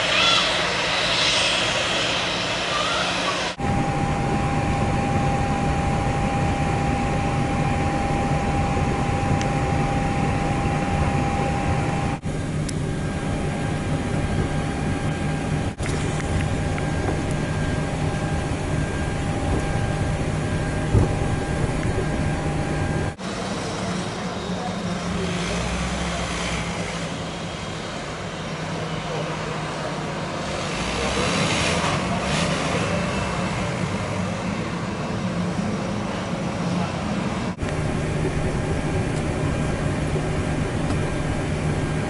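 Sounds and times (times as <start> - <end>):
jet engines idling hum: 0.0 - 42.0
thin high whine: 1.6 - 15.8.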